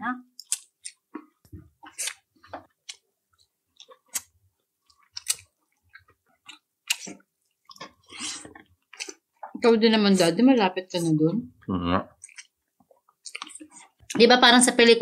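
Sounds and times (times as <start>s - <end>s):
person chewing close up: 0.4s - 9.6s, 12.1s - 14.2s.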